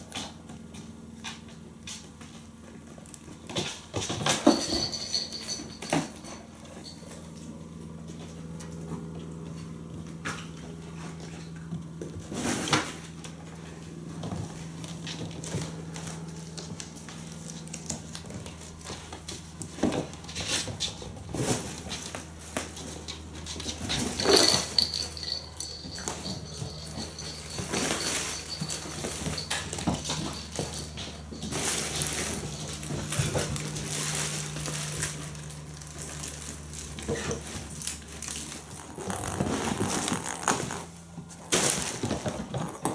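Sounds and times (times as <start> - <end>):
paw patter: 0.0 - 42.9
plastic toys clattering: 22.8 - 35.3.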